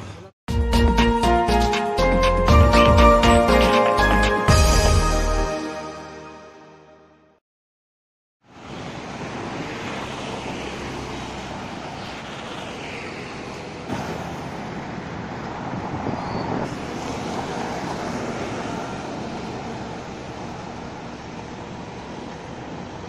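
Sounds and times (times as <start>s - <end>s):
road traffic passing: 1.1s - 6.2s, 8.4s - 23.0s.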